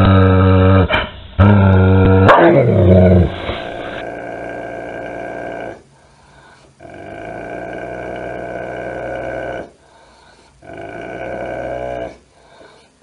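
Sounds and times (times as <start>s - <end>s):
dog growling deeply: 0.0s - 5.9s, 6.8s - 9.8s, 10.6s - 12.3s
dog breathing: 5.9s - 6.9s, 9.7s - 13.0s.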